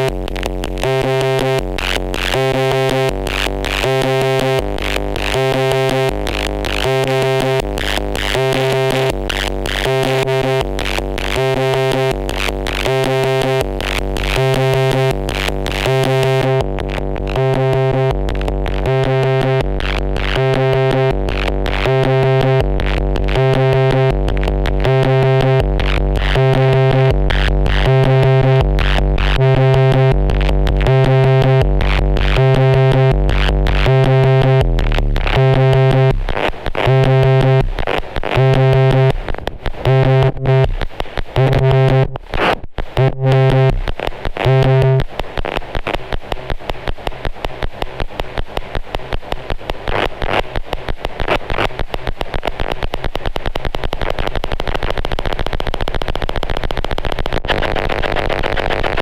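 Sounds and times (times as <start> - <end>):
buzzing pitched tone: 0.0 - 45.3
synth bass alternating notes: 0.0 - 59.0.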